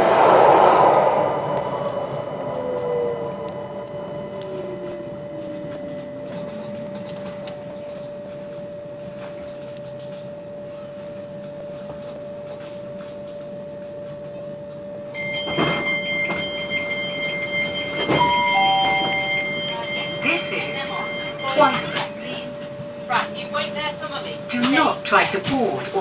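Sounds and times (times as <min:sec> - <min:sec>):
two-note falling tone: 0:00.0 - 0:08.9, 0:14.5 - 0:23.0
electric train humming: 0:00.0 - 0:26.0
high door-warning tone: 0:15.1 - 0:23.2.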